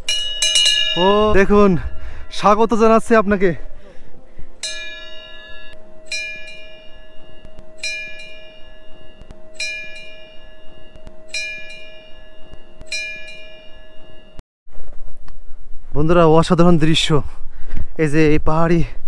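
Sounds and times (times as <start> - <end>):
small metal bell ringing: 0.0 - 2.6, 4.6 - 14.4
steady low hum: 0.0 - 14.4.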